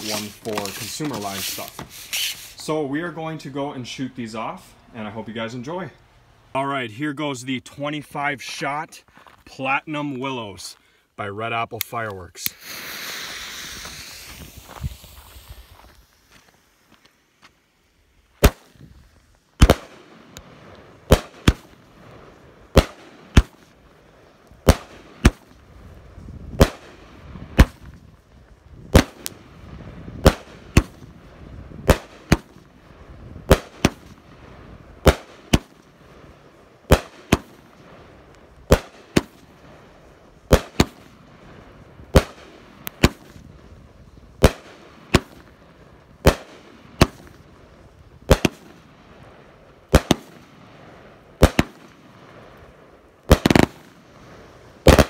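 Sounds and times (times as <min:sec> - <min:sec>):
firework bangs: 0:00.0 - 0:02.6, 0:12.5 - 0:16.9, 0:18.4 - 0:18.9, 0:19.6 - 0:55.0.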